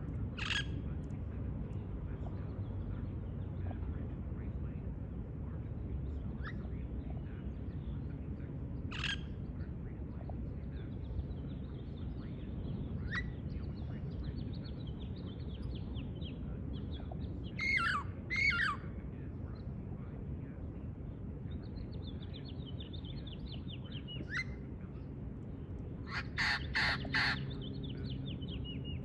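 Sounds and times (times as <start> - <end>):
low background rumble: 0.0 - 29.0
parrots squawking: 17.6 - 18.8, 26.1 - 27.5.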